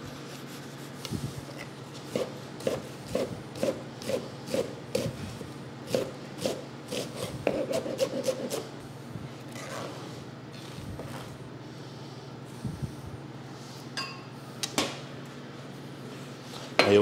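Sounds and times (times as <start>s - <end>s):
knife chopping on cutting board: 2.1s - 5.2s, 5.9s - 8.6s.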